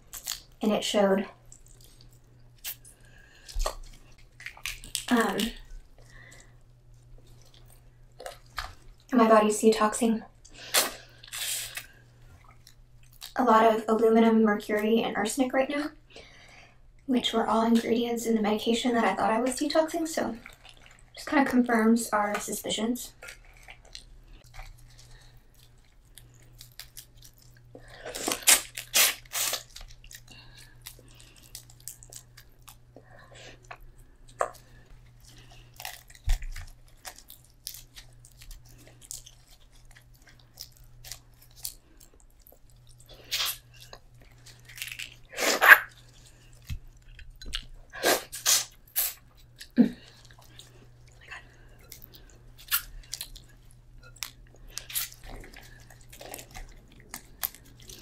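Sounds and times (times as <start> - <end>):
chewing: 1.4 - 9.1, 10.4 - 13.4, 20.2 - 21.2, 23.1 - 58.0
wet squishing: 1.4 - 9.3, 19.3 - 58.0
shellfish shells cracking: 2.6 - 6.5, 35.3 - 47.8, 51.8 - 58.0.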